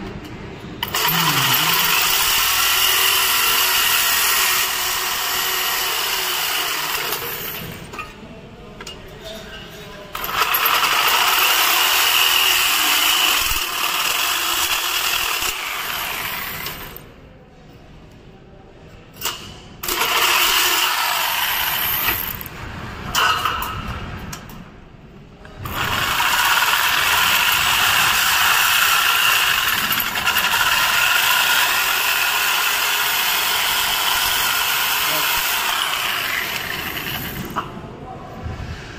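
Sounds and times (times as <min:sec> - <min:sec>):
jigsaw cutting sheet metal: 0:00.8 - 0:07.8, 0:10.2 - 0:17.0, 0:19.8 - 0:22.5, 0:25.6 - 0:37.6.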